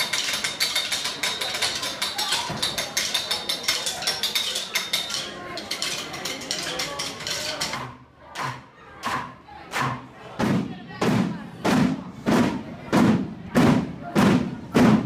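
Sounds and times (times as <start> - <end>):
wooden sticks tapping: 0.0 - 8.6.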